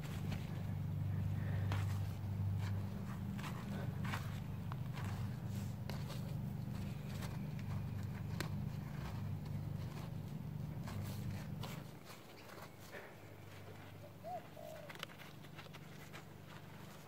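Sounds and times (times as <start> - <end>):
hand digging and scraping soil: 0.0 - 13.9
low steady hum: 0.0 - 17.0
bird calls: 13.0 - 15.2.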